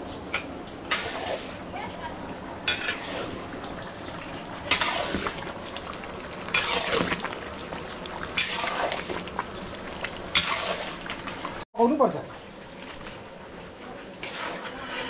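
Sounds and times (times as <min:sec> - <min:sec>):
curry bubbling: 0:00.8 - 0:11.6
metal ladle scraping a pan: 0:00.9 - 0:01.7, 0:02.6 - 0:03.6, 0:04.6 - 0:05.4, 0:06.4 - 0:07.4, 0:08.2 - 0:09.2, 0:10.3 - 0:11.1, 0:14.2 - 0:15.0.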